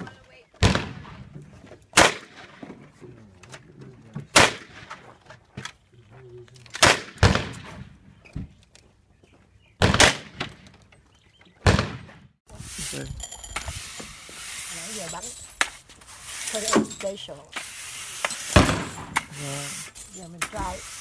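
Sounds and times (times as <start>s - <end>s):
revolver gunshots: 0.6s - 1.2s, 6.8s - 7.8s, 9.8s - 10.5s, 18.4s - 19.2s.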